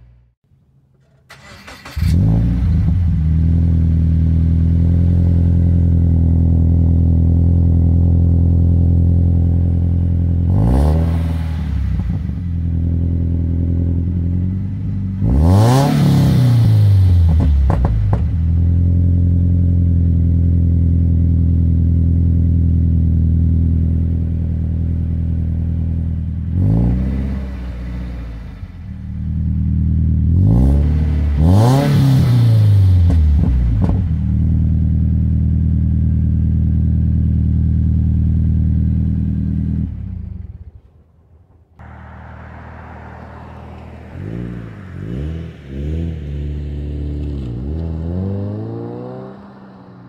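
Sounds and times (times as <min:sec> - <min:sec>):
engine revving: 0:01.3 - 0:19.6, 0:26.4 - 0:34.6, 0:41.8 - 0:50.0
car engine idling: 0:34.4 - 0:48.2.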